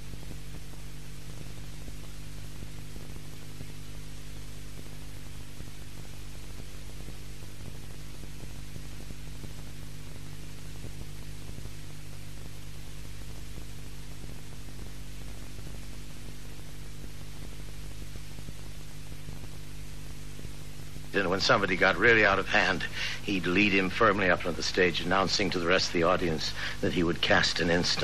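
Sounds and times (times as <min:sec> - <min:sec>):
low electrical hum: 0:00.0 - 0:28.0
tape hiss: 0:00.0 - 0:28.0.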